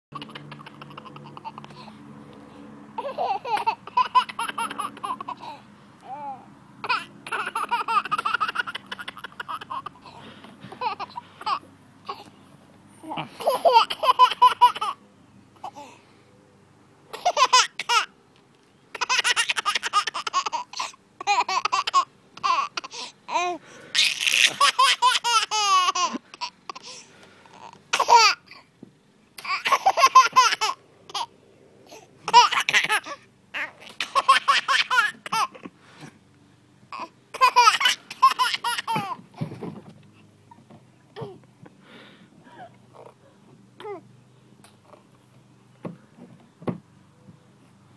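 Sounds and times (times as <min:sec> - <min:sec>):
baby giggling: 0:00.2 - 0:01.9, 0:03.0 - 0:12.3, 0:13.1 - 0:15.0, 0:17.1 - 0:18.1, 0:18.9 - 0:26.9, 0:29.4 - 0:31.3, 0:32.3 - 0:35.6, 0:37.0 - 0:39.2.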